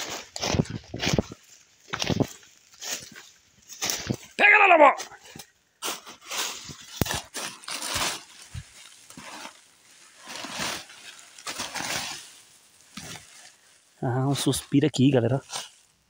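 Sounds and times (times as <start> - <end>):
dry leaves rustling and crunching: 0.0 - 4.4, 5.2 - 16.0
twigs snapping: 6.8 - 9.6.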